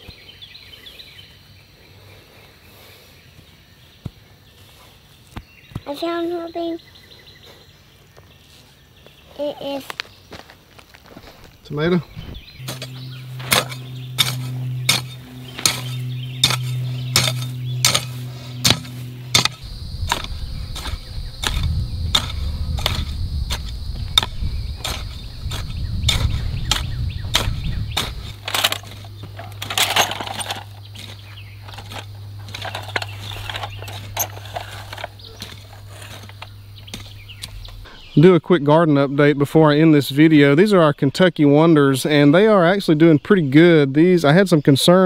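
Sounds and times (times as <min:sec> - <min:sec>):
low hum: 0:12.0 - 0:38.1
hoe chopping dry soil: 0:12.6 - 0:37.9.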